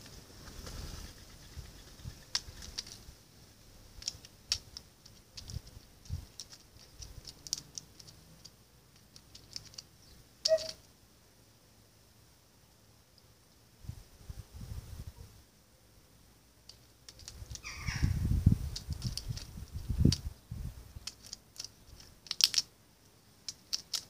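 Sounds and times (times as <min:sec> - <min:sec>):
bird pecking on paving stones: 0:00.0 - 0:11.0, 0:16.5 - 0:24.0.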